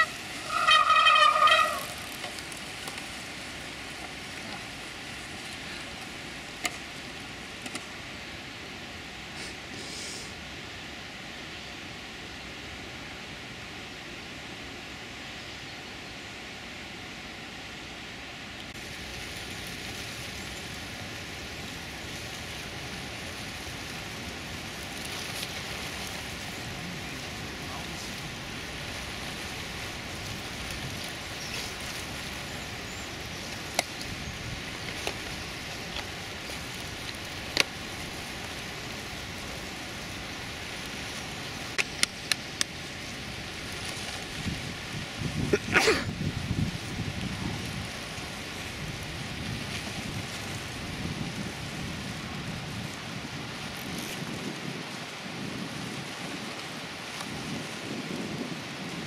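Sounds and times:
outdoor wind noise: 0:00.0 - 0:59.0.

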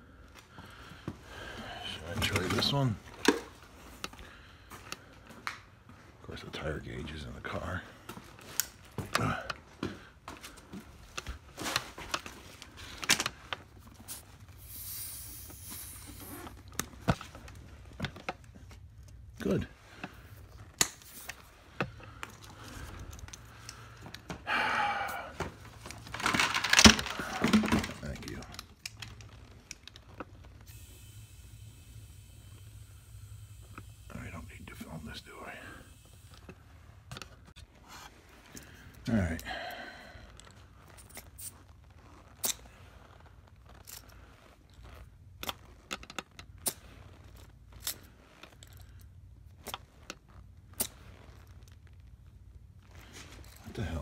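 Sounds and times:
low steady hum: 0:05.8 - 0:54.0
short hiss of air: 0:14.6 - 0:16.3.

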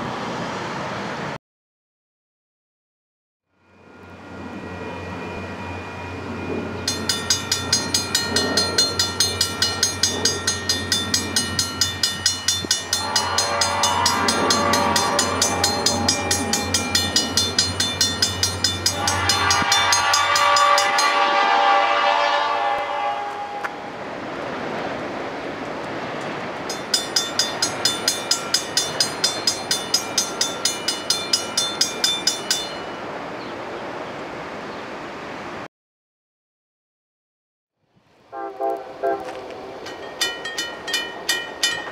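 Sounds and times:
railroad crossing bell ringing: 0:03.5 - 0:23.6, 0:26.6 - 0:33.4, 0:38.9 - 0:41.9
train rumble: 0:03.6 - 0:35.6, 0:38.3 - 0:41.9
train horn blasts: 0:12.7 - 0:17.4, 0:18.7 - 0:23.9, 0:38.3 - 0:39.8.

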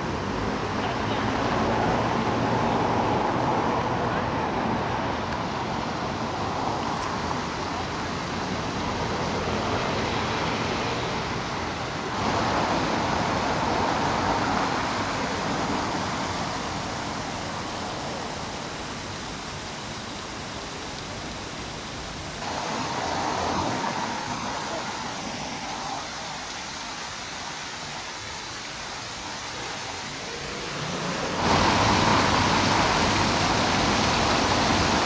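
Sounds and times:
fountain jet splashing into basin: 0:28.6 - 0:35.0.

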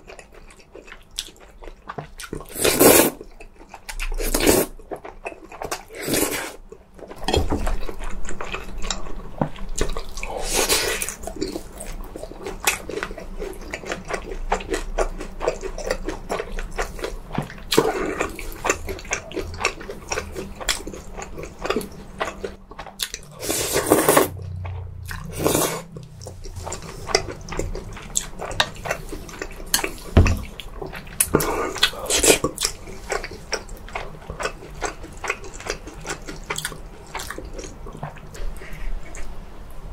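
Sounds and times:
wet chewing and biting: 0:24.4 - 0:39.3.

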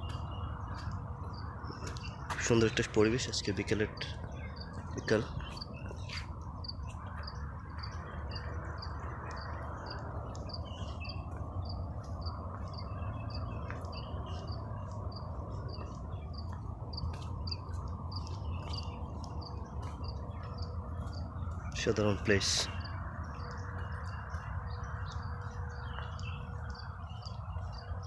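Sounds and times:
cricket chirping: 0:05.5 - 0:21.7, 0:22.7 - 0:28.0.

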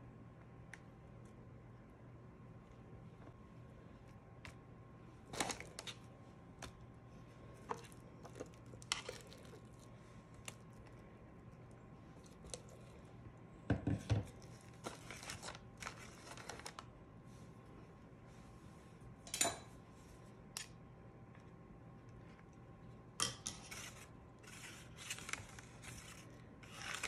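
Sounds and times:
faint steady hum: 0:00.0 - 0:27.0
parchment paper crinkling: 0:14.3 - 0:16.9, 0:23.6 - 0:27.0
spatula and spoon scraping: 0:23.3 - 0:25.2.

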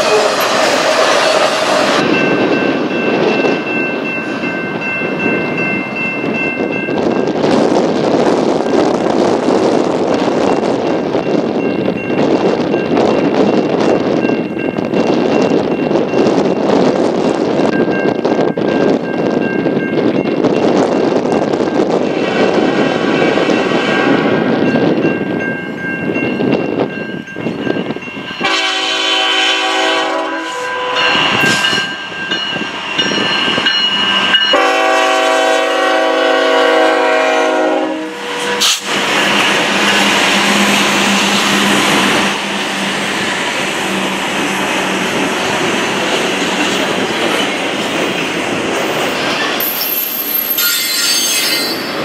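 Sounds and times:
diesel locomotive engines running: 0:00.0 - 0:25.4, 0:26.0 - 0:50.6
train air horn blasts: 0:28.4 - 0:31.7, 0:34.5 - 0:38.9
train wheels rolling over rails: 0:38.1 - 0:52.0.

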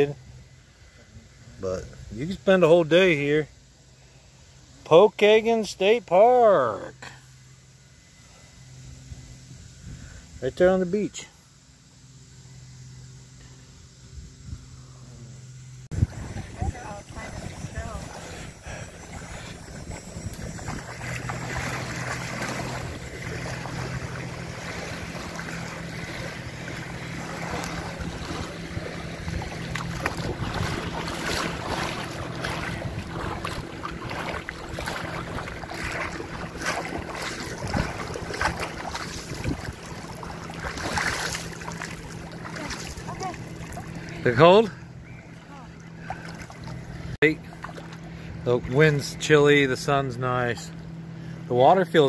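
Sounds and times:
low steady drone: 0:00.0 - 0:52.0
wind buffeting microphone: 0:15.9 - 0:44.0
splashing steps in water: 0:19.0 - 0:44.4, 0:45.3 - 0:48.2.

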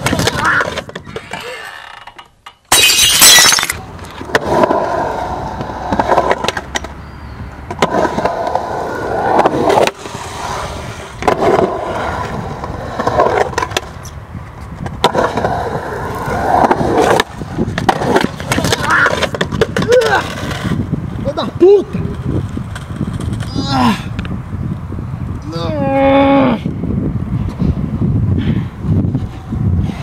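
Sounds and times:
skateboard clacks: 0:00.0 - 0:01.4, 0:04.0 - 0:07.0, 0:11.0 - 0:20.8
skateboard wheels rolling on concrete: 0:00.0 - 0:02.5, 0:03.7 - 0:30.0.

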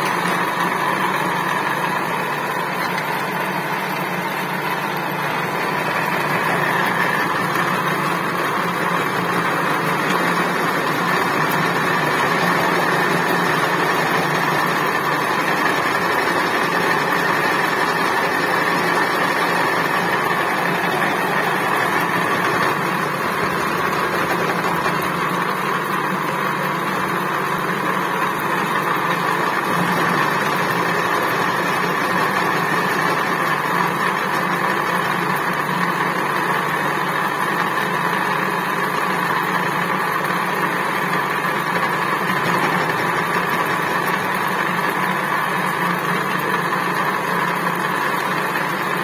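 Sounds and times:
high steady cutting whine: 0:00.0 - 0:49.0
milling machine hum: 0:00.0 - 0:49.0.

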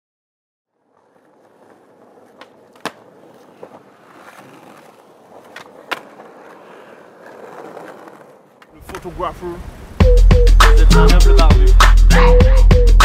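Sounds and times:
skateboard wheels rolling on pavement: 0:00.6 - 0:11.7
skateboard clacks: 0:00.7 - 0:09.2.

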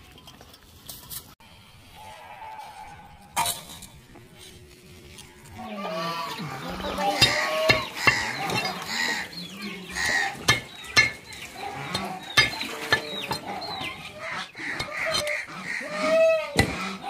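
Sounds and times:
animal calls: 0:05.5 - 0:17.0.

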